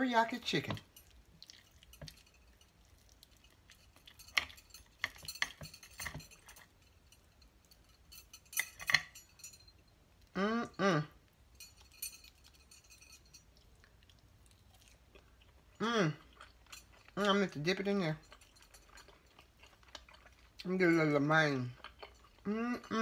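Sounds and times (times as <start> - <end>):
fork clinking on ceramic platter: 0.7 - 9.8, 11.6 - 13.5
person humming: 10.3 - 11.2, 15.8 - 16.2, 22.5 - 23.0.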